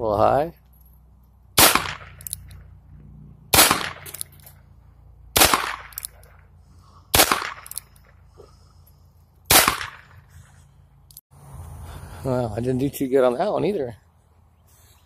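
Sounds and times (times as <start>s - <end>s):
revolver shots: 1.6s - 2.5s, 3.5s - 4.4s, 5.4s - 6.1s, 9.5s - 10.2s.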